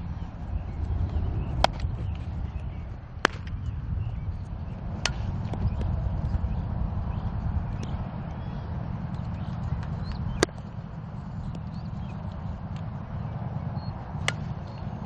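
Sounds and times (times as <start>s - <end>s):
birds chirping faintly: 0.0s - 15.0s
wind buffeting microphone: 0.0s - 15.0s
softball bat cracks: 1.6s - 1.9s, 3.2s - 3.7s, 5.0s - 5.9s, 9.4s - 10.7s, 14.2s - 14.6s.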